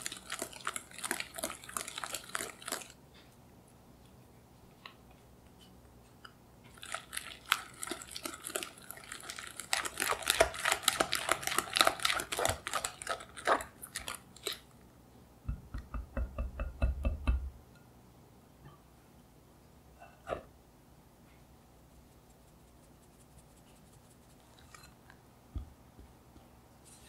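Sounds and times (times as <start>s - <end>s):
whisk scraping glass bowl: 6.8s - 14.6s.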